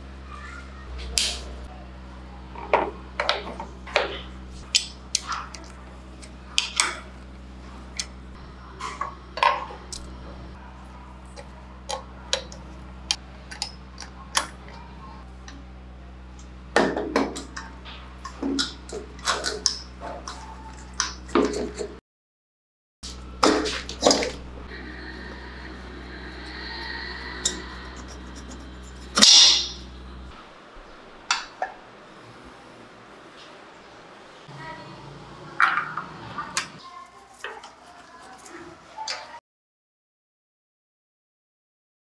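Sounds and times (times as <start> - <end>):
low steady hum: 23.0 - 35.6.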